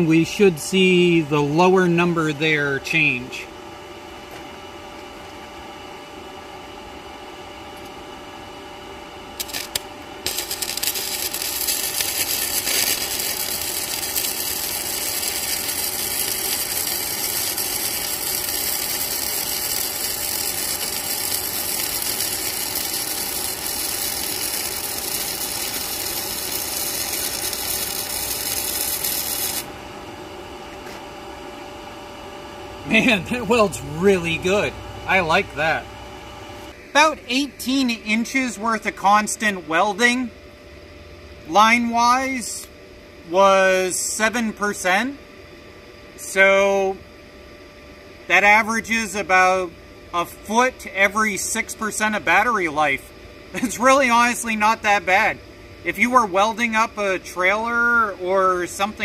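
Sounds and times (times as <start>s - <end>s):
welder arc crackling and hissing: 0.0s - 3.5s, 9.2s - 29.8s, 32.7s - 40.3s, 41.4s - 45.2s, 46.2s - 47.0s, 48.3s - 59.0s
equipment fan humming: 0.0s - 59.0s.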